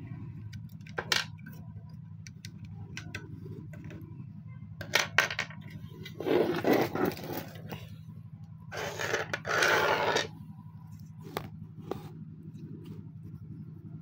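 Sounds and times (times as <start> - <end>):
steady low hum: 0.0 - 14.0
scraping and rustling: 5.6 - 7.9, 8.7 - 10.3.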